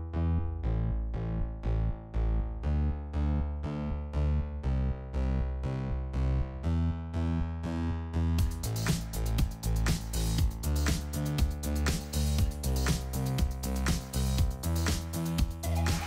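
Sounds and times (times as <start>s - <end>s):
deep bass: 0.0s - 16.0s
drum beat: 8.4s - 16.0s.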